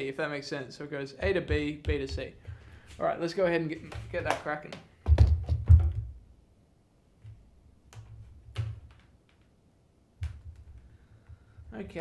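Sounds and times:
clicks and taps: 0:07.2 - 0:09.6, 0:10.2 - 0:11.4.

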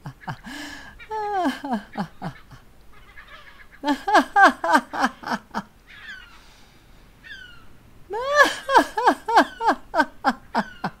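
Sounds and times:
woman laughing like a gull: 0:00.0 - 0:02.6, 0:03.8 - 0:05.6, 0:08.1 - 0:11.0
faint high falling cries: 0:00.0 - 0:11.0.

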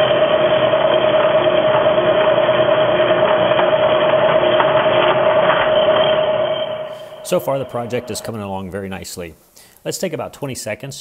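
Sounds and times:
saw whining cutting metal: 0:00.0 - 0:08.5.

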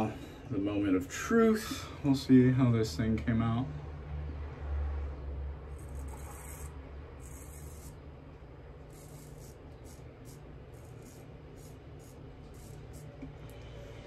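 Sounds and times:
razor scraping stubble: 0:05.7 - 0:08.0, 0:08.8 - 0:13.5.

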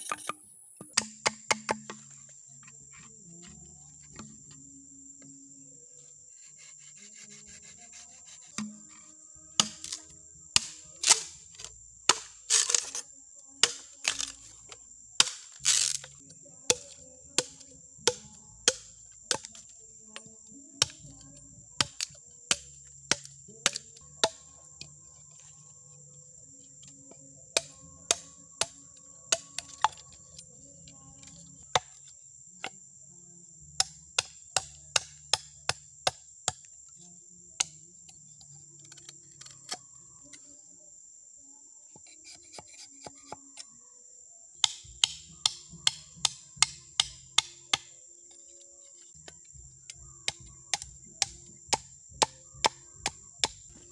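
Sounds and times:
knife chopping bamboo: 0:00.1 - 0:02.0, 0:06.4 - 0:13.0, 0:13.6 - 0:21.2, 0:21.8 - 0:25.5, 0:27.6 - 0:30.1, 0:31.2 - 0:32.8, 0:33.7 - 0:36.7, 0:44.6 - 0:48.0, 0:49.2 - 0:53.9
insects shrilling: 0:13.8 - 0:16.2.

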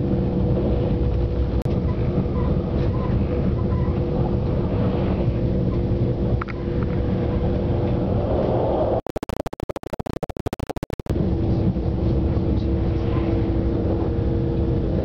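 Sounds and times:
train rumble from inside: 0:00.0 - 0:09.0, 0:11.1 - 0:15.0
steady hum: 0:00.0 - 0:15.0
rapid glitch clicks: 0:09.0 - 0:11.1.

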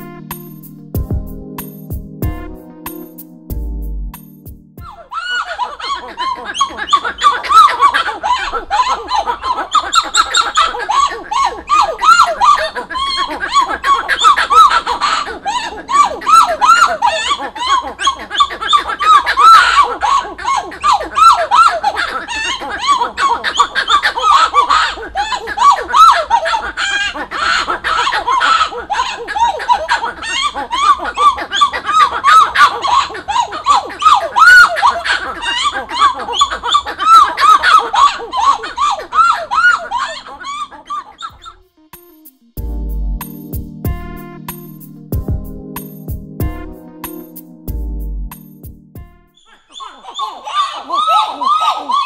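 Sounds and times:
monkeys calling in a duet: 0:04.8 - 0:41.7, 0:49.3 - 0:52.0.

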